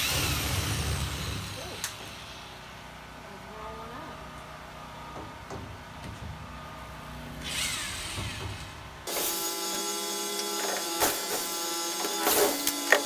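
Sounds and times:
power tool motor whine: 7.3s - 13.0s.

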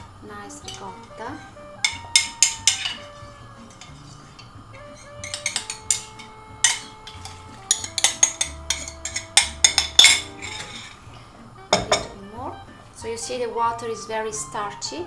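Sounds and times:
soft background music: 0.0s - 15.0s
metal spoon clinking ceramic bowl: 1.8s - 3.1s, 3.7s - 11.0s.

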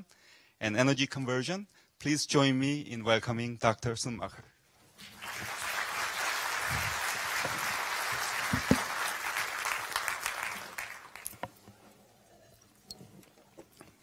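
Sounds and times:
audience applauding: 5.0s - 11.4s.

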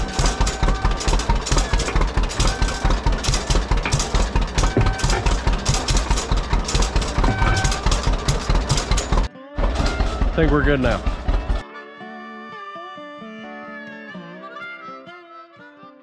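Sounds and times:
tractor engine chugging: 0.0s - 11.6s.

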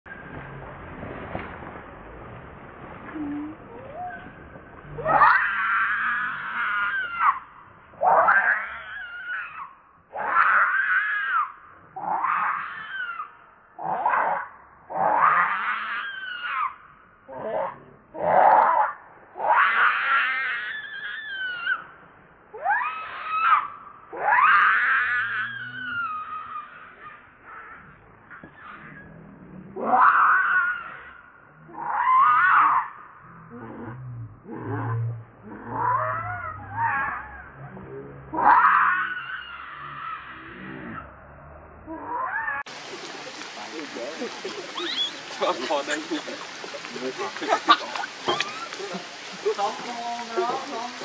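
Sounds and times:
baby monkey screaming: 43.8s - 46.5s, 47.4s - 49.0s.

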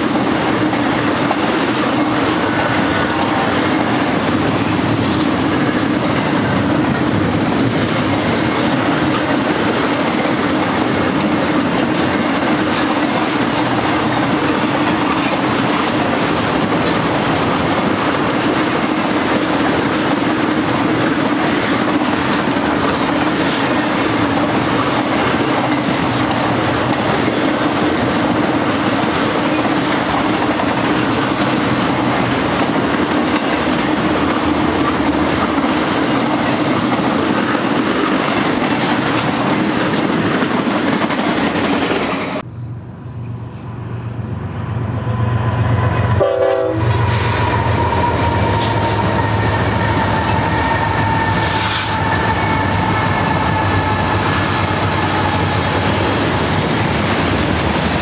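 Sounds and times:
clickety-clack over rail joints: 0.0s - 42.5s
diesel locomotive engines: 0.0s - 58.0s
train wheels rumbling on rail: 0.0s - 58.0s.

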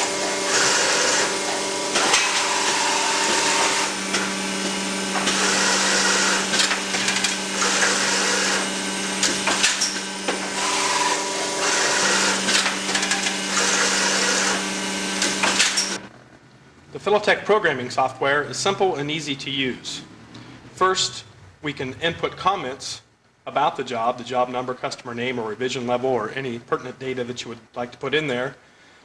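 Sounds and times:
harsh cutting noise: 0.0s - 16.0s
motor hum: 0.0s - 16.1s.

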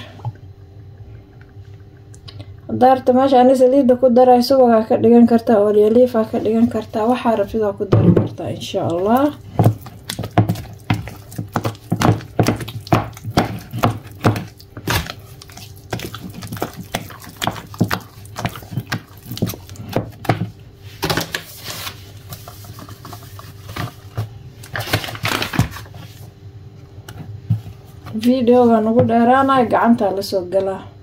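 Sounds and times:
wooden spoon beating batter: 6.3s - 21.4s, 22.2s - 25.7s.

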